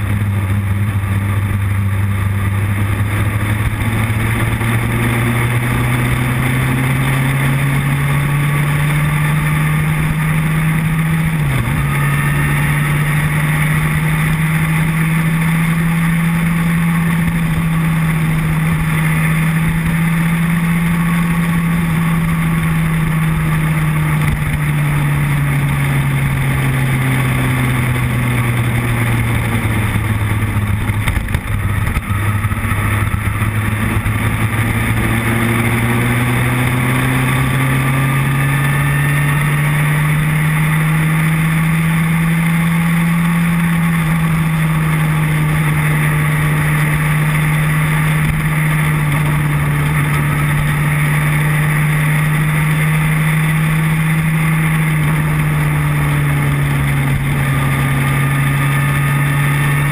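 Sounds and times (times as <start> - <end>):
motorcycle engine running: 0.0 - 59.9
wind rush over microphone: 27.5 - 37.4.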